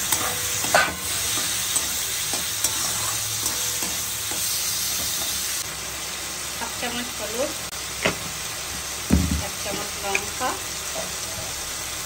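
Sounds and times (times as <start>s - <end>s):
metal spatula scraping a pan: 0.0s - 5.4s
vegetables sizzling in hot fat: 0.0s - 12.0s.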